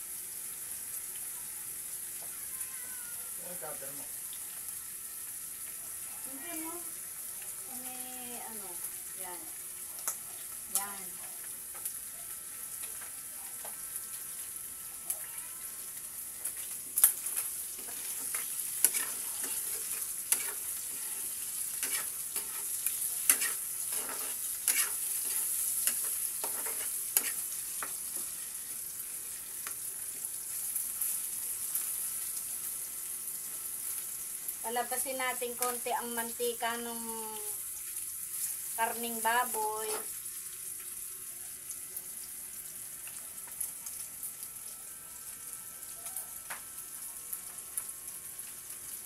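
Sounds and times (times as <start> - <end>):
meat sizzling in hot oil: 0.0 - 49.0
metal spatula scraping wok: 17.2 - 27.5.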